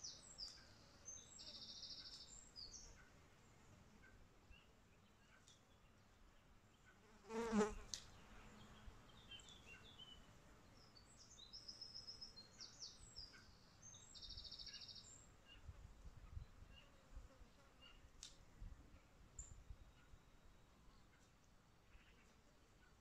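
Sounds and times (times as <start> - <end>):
flying insect buzzing: 7.3 - 7.9.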